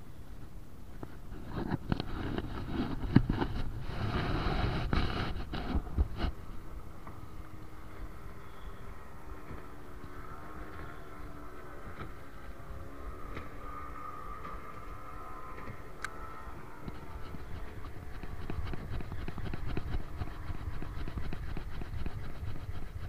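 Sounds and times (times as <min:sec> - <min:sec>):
distant motorboat engine: 0:00.0 - 0:23.0
wind on microphone: 0:00.0 - 0:23.0
rustling and clicks: 0:16.8 - 0:23.0.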